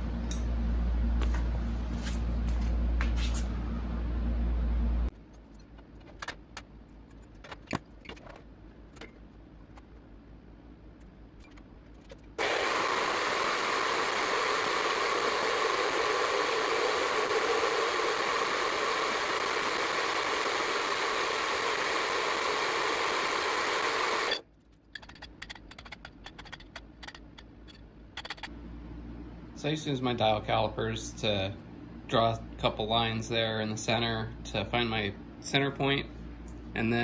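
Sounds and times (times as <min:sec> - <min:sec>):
bandsaw cutting metal: 0:12.4 - 0:24.4.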